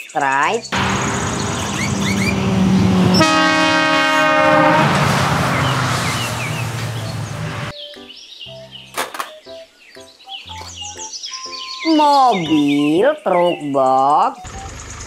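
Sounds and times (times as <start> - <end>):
truck diesel engine: 0.7 - 7.7, 14.4 - 15.0
truck air horn blast: 0.8 - 7.7.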